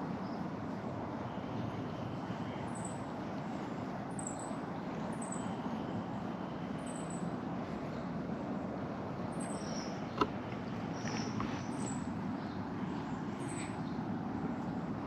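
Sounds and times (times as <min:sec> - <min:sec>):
small birds high thin calls: 0:09.3 - 0:14.0.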